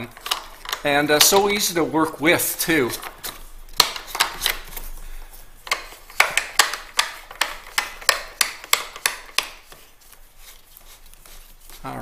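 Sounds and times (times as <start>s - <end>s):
sharp hard plastic clicks: 3.0s - 4.7s, 5.6s - 9.8s.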